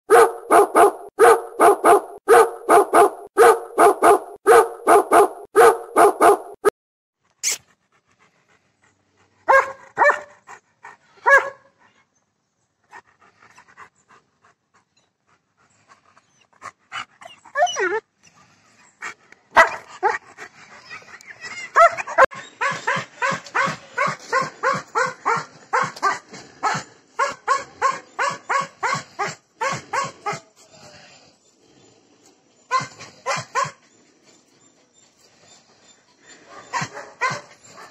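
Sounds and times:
dogs barking: 0.1 - 6.6, 9.5 - 10.4, 11.2 - 11.7, 19.5 - 20.2, 21.5 - 30.4, 32.7 - 33.8, 36.5 - 37.9.

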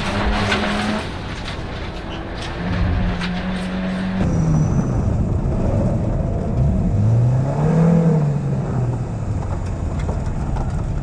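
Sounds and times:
rally car engine: 0.0 - 11.0.

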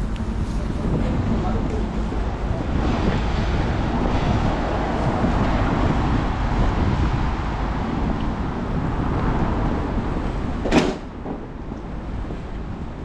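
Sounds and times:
passing vehicles rumble: 0.0 - 13.0
wind buffeting microphone: 0.0 - 13.0.

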